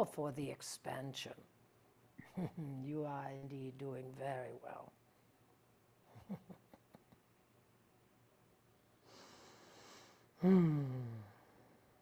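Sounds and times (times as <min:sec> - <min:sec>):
woman breathing: 0:09.0 - 0:12.0
woman sighing: 0:10.4 - 0:11.6.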